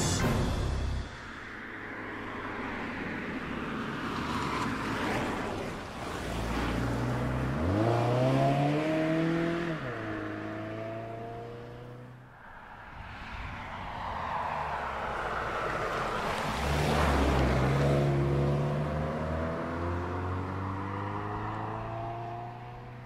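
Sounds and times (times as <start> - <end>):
tyres and wind rushing: 0.0 - 23.0
car engine accelerating: 6.0 - 12.1.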